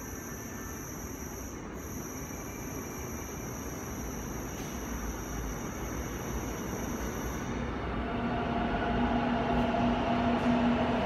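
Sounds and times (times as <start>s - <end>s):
subway train rumbling on rails: 0.0s - 11.0s.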